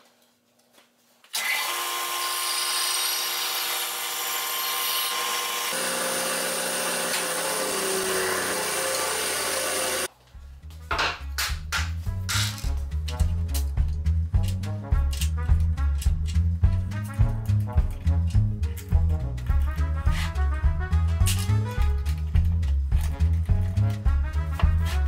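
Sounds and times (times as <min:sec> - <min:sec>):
bandsaw cutting plywood: 0:01.3 - 0:10.1
music with low beat: 0:10.4 - 0:25.0.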